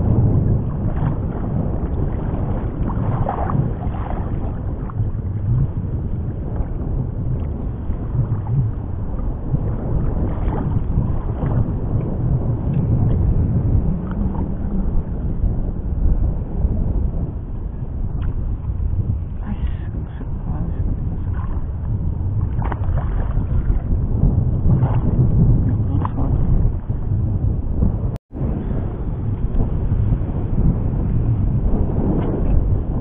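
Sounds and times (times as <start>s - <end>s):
wind buffeting microphone: 0.0s - 33.0s
small waves lapping: 22.4s - 23.9s.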